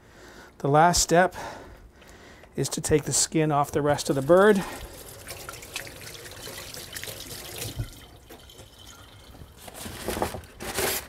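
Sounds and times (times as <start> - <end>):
hands rinsed under water: 3.9 - 9.6
tap running: 5.0 - 9.7.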